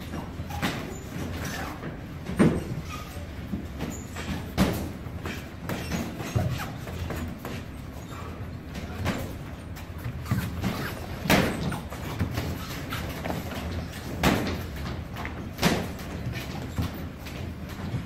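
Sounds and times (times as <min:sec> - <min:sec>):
boxing gloves thudding: 0:10.1 - 0:17.1.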